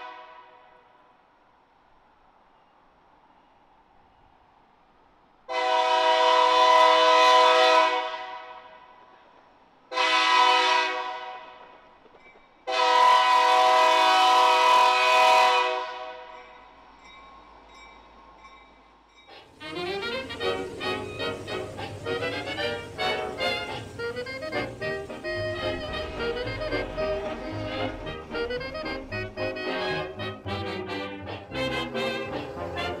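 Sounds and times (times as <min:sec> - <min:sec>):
locomotive air horn blasts: 0:00.0 - 0:00.9, 0:05.5 - 0:08.8, 0:09.9 - 0:11.7, 0:12.7 - 0:16.4, 0:19.6 - 0:33.0
music: 0:19.3 - 0:33.0.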